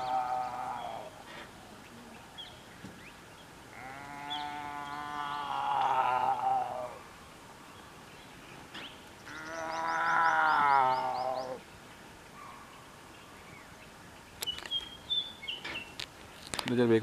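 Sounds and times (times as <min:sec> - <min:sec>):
tiger calling: 0:00.0 - 0:01.5, 0:09.2 - 0:11.6.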